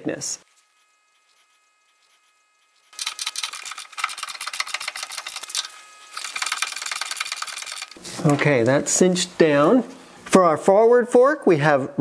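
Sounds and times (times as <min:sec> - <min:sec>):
hand ratchet clicking: 0:02.9 - 0:08.0.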